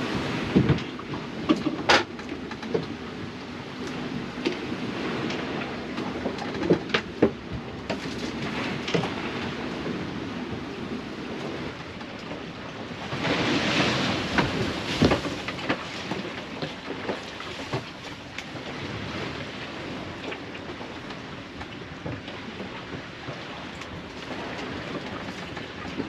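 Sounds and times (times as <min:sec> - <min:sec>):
boat knocks and creaks: 0:00.0 - 0:26.0
water rushing along hull: 0:00.0 - 0:26.0.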